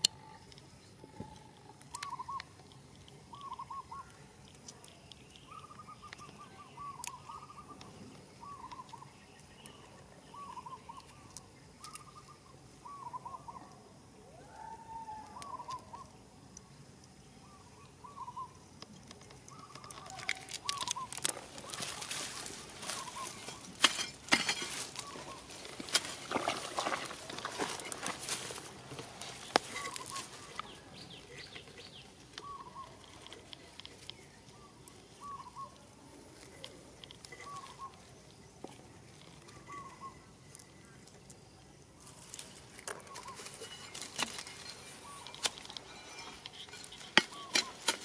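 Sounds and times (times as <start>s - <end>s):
bird calling: 0.0s - 16.2s, 17.3s - 41.0s, 42.0s - 48.0s
dry grass rustling and crackling: 19.0s - 48.0s.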